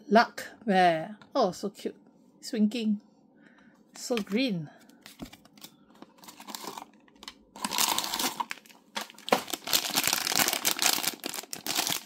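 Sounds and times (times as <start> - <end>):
plastic packaging crinkling: 5.1 - 12.0.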